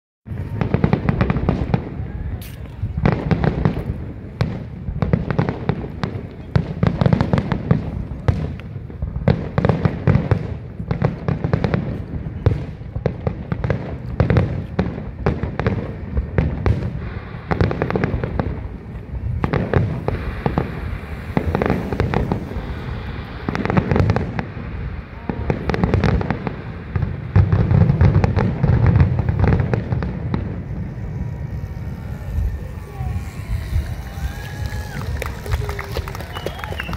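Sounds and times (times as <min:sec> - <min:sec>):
firework shell bursts and crackles: 0:00.3 - 0:36.9
low continuous rumble: 0:26.3 - 0:36.9.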